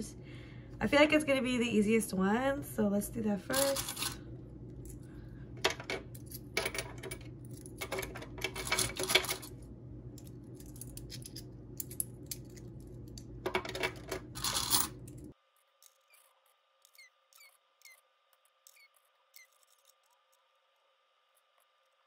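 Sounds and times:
steady low hum: 0.0s - 15.4s
coins clinking in hand: 3.5s - 4.2s, 5.6s - 9.5s, 13.5s - 15.3s
coins clicking into plastic tray: 3.6s - 4.2s, 5.6s - 9.5s, 13.4s - 15.3s.

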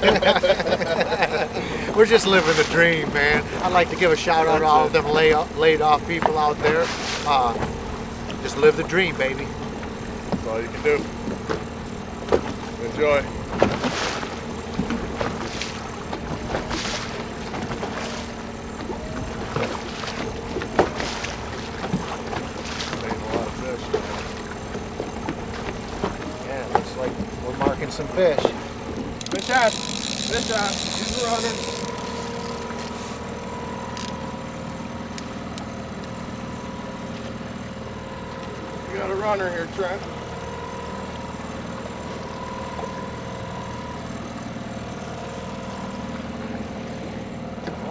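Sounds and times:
outboard motor running: 0.0s - 47.9s
water noise: 0.0s - 47.9s
wind: 0.0s - 47.9s
knocks against boat: 6.0s - 8.5s, 9.6s - 33.3s, 47.6s - 47.9s.

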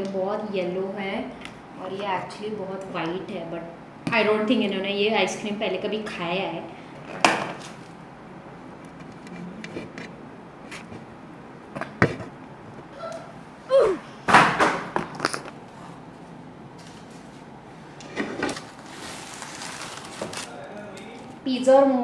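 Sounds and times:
scraping and rustling: 18.1s - 21.3s.

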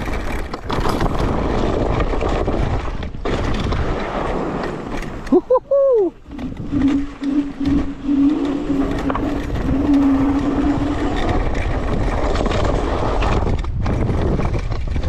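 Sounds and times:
tyre rumble: 0.0s - 15.0s
wind noise on microphone: 0.0s - 15.0s
electric scooter motor whine: 6.2s - 11.9s.

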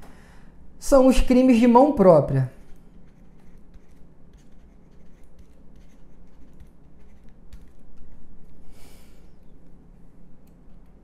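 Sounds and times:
low steady hum: 0.0s - 11.0s
stylus scratching on tablet: 2.4s - 8.6s.

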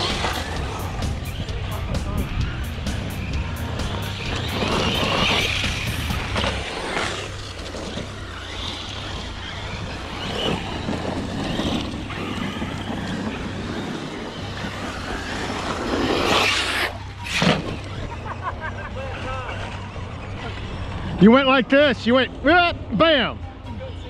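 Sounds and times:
rush of noise: 0.0s - 18.5s
electric rc trucks running: 0.0s - 22.6s.

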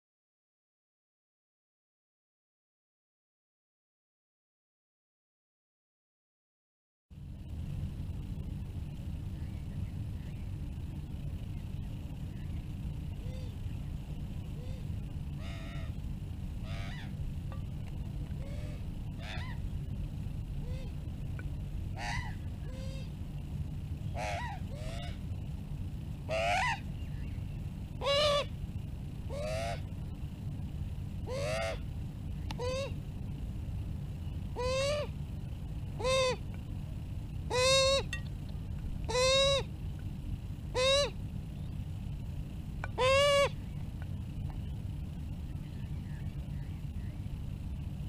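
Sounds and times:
steady low rumble: 7.1s - 48.0s
magpies calling: 12.4s - 16.0s, 16.6s - 17.2s, 18.4s - 19.8s, 20.6s - 21.0s, 21.9s - 23.2s, 24.1s - 25.3s, 26.2s - 28.6s, 29.2s - 29.9s, 31.2s - 33.0s, 34.2s - 35.2s, 35.9s - 36.5s, 37.4s - 38.2s, 39.0s - 39.8s, 40.7s - 41.8s, 42.8s - 43.8s.

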